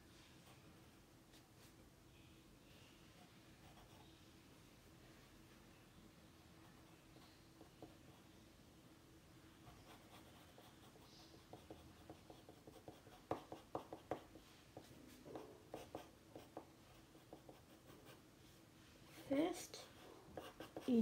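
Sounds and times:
faint steady hum: 0:00.0 - 0:21.0
pencil scratching on paper: 0:03.6 - 0:04.1, 0:09.6 - 0:18.2, 0:19.8 - 0:21.0.

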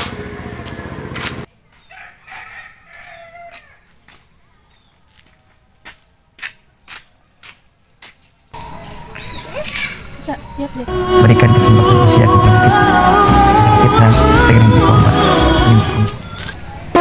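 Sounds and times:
rooster crowing: 0:01.9 - 0:03.9.

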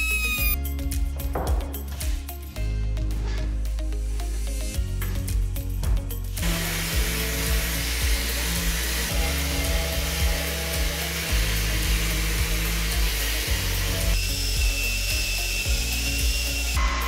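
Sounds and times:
drill whining against wood: 0:00.0 - 0:00.6, 0:06.4 - 0:17.0
background music with bass beat: 0:00.0 - 0:17.0
orbital sander hissing: 0:06.3 - 0:17.0.

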